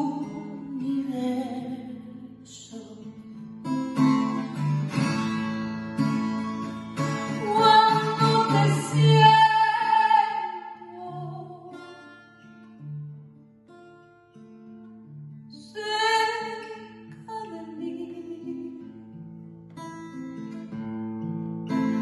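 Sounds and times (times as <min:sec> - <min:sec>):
acoustic guitar plucking: 0:00.0 - 0:22.0
person singing: 0:07.3 - 0:12.0, 0:15.6 - 0:18.9.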